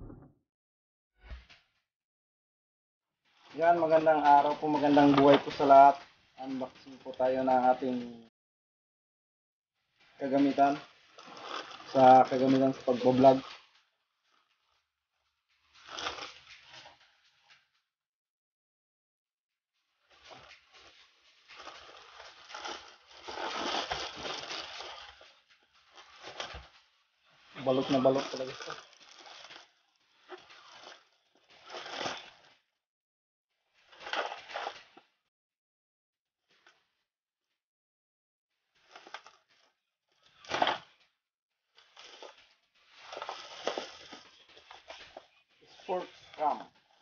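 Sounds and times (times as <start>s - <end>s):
plastic mailer crinkling and tearing: 3.4s - 8.0s, 10.1s - 14.7s, 15.6s - 17.5s, 20.1s - 32.7s, 33.8s - 35.0s, 38.8s - 41.0s, 41.7s - 47.0s.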